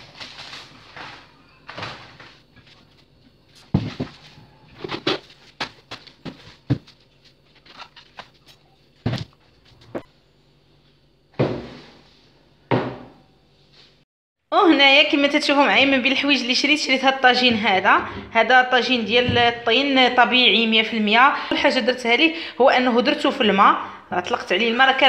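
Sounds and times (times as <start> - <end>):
plastic crinkling: 0.0 - 3.8.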